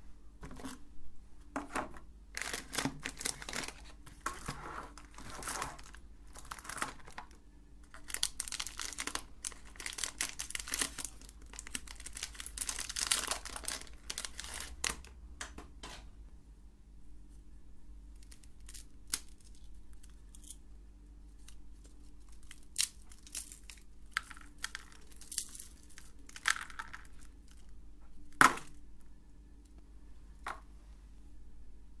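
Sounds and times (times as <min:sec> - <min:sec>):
faint steady hum: 0:00.0 - 0:32.0
biscuit breaking and crackling: 0:05.0 - 0:15.1, 0:18.2 - 0:20.6, 0:21.4 - 0:28.8.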